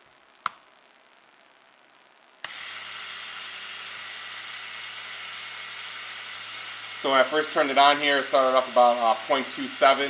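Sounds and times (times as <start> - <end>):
small electric motor whirring: 2.4 - 10.0.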